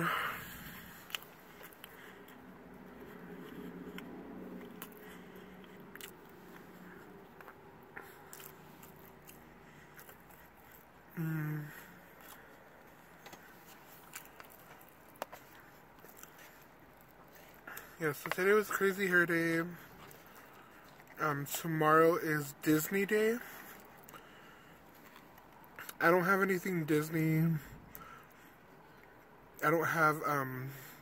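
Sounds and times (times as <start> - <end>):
person chewing food: 0.0 - 18.4, 19.8 - 21.2, 23.5 - 26.0
person humming: 11.2 - 11.9.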